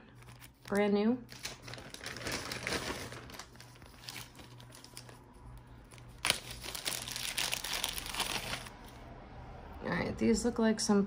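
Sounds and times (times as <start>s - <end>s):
plastic bag crinkling: 0.2s - 8.8s.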